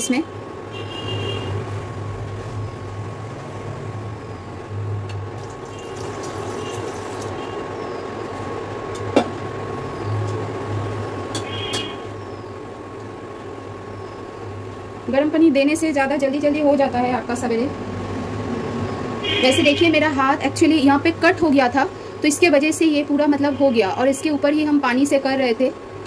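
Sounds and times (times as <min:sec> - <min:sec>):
water pouring and splashing: 0:05.4 - 0:07.6.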